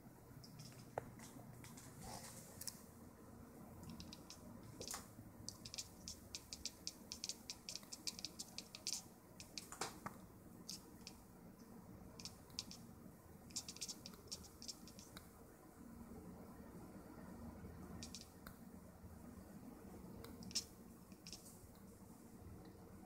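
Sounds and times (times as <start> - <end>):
cat chattering clicks: 3.8 - 9.8, 12.2 - 12.8, 13.5 - 15.2, 18.0 - 18.3, 20.4 - 21.4
cat chirp: 13.5 - 15.1.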